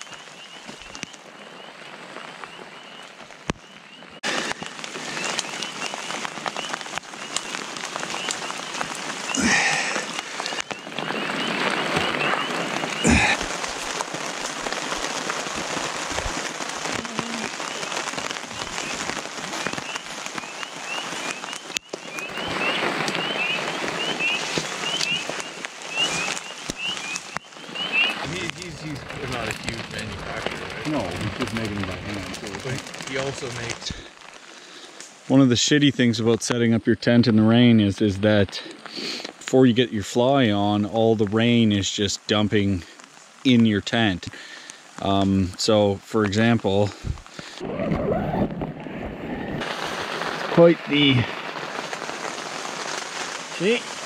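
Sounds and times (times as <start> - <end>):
steady rain falling: 0.0 - 54.0.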